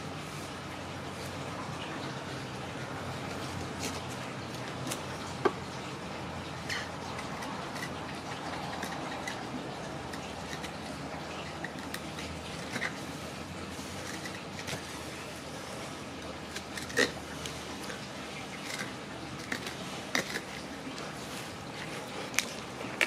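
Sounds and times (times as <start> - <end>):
knife scraping fish: 6.6 - 23.0.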